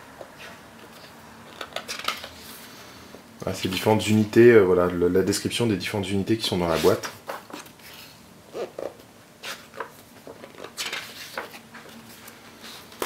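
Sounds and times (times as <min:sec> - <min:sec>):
paper pages turning: 0:06.7 - 0:13.0.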